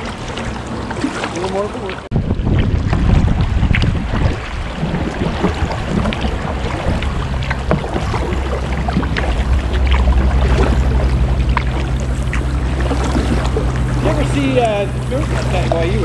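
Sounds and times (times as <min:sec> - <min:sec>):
low steady hum: 0:00.0 - 0:16.0
paddle splashes and drips: 0:00.0 - 0:16.0
water lapping at hull: 0:00.0 - 0:16.0.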